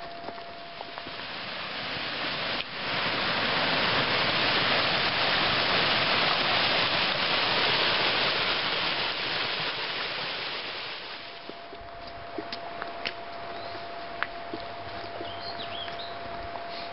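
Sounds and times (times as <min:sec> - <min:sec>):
creek rushing over rocks: 0:00.8 - 0:11.7.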